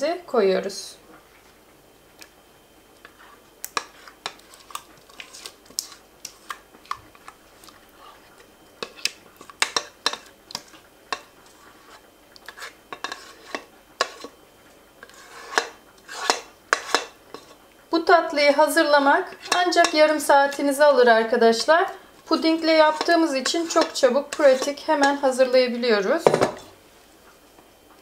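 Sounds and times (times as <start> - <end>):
spatula scraping a saucepan: 3.0 - 6.6, 7.2 - 14.4, 15.0 - 17.6, 19.0 - 25.8
spatula tapping pot rim: 8.8 - 11.3, 15.5 - 17.5, 19.4 - 20.0, 22.8 - 25.2.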